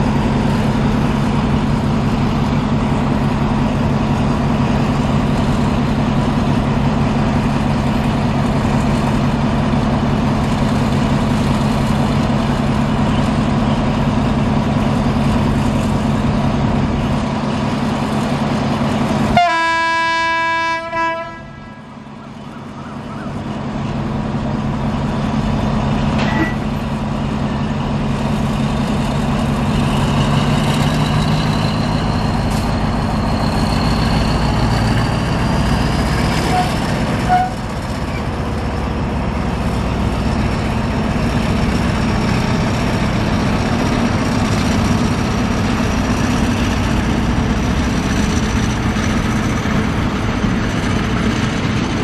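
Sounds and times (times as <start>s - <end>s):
diesel locomotive engine humming: 0.0s - 52.0s
locomotive horn: 19.3s - 21.9s, 36.4s - 37.7s.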